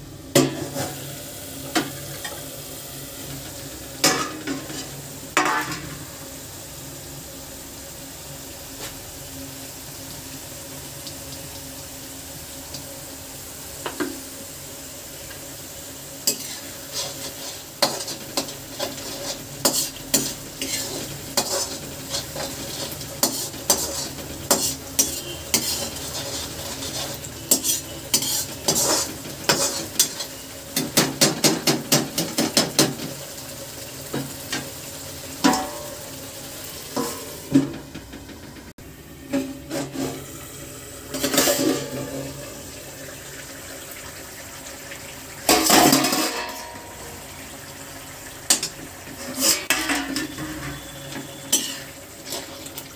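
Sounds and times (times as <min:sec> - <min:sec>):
sauce sizzling in a pan: 0:00.0 - 0:52.9
utensil scraping a pan: 0:16.3 - 0:30.4, 0:39.3 - 0:40.2, 0:41.1 - 0:42.4, 0:48.5 - 0:52.8.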